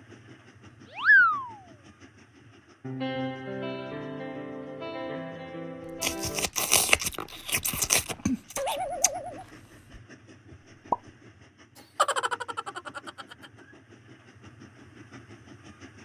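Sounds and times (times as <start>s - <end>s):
cartoon warbling tone: 1.0s - 1.8s, 8.5s - 9.5s
exaggerated slurping and munching: 6.0s - 10.0s, 11.8s - 13.5s.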